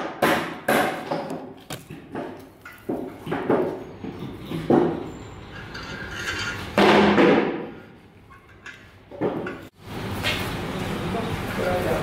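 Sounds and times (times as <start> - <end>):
wood knocks and clatters: 0.0 - 5.0.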